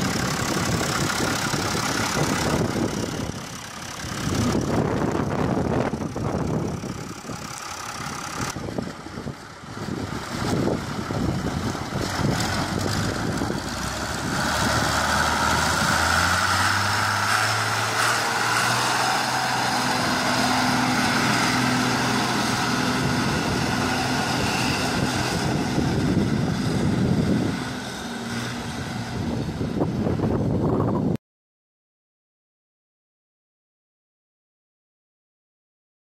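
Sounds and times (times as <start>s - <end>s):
tyres on gravel: 0.0s - 26.6s
tractor engine running: 0.0s - 31.2s.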